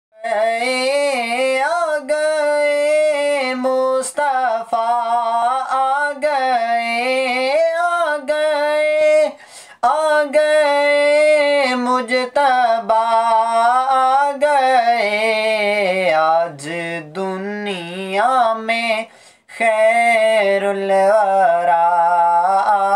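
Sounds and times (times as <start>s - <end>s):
man singing unaccompanied: 0.2s - 22.9s.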